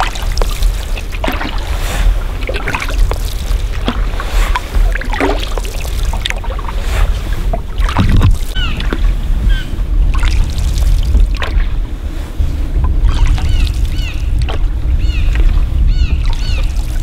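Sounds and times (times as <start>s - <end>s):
water dripping: 0.0s - 1.7s, 2.4s - 6.6s, 12.8s - 17.0s
low rumble: 0.0s - 17.0s
paddle splashing in water: 0.0s - 17.0s.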